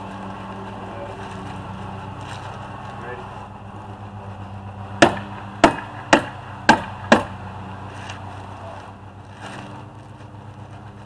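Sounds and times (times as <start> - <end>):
hammer tacker stapling wood: 5.0 - 7.4.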